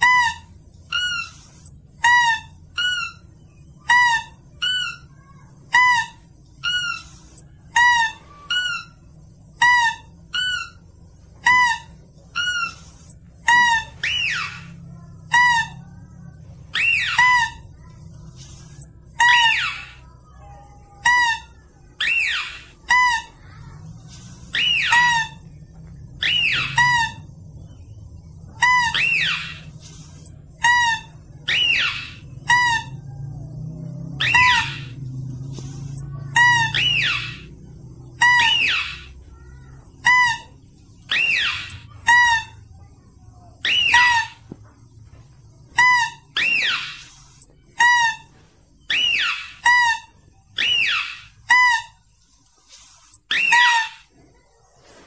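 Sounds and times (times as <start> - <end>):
high-pitched lure calls: 16.7 - 27.3, 28.4 - 33.2, 34.2 - 35.0, 35.6 - 42.6, 48.9 - 52.1.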